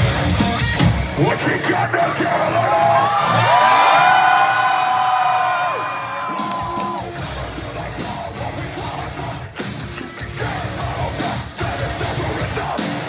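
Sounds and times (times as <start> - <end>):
metalcore band playing live: 0.0 - 4.7, 6.3 - 13.0
drums: 0.0 - 13.0
heavy distorted guitars: 0.0 - 13.0.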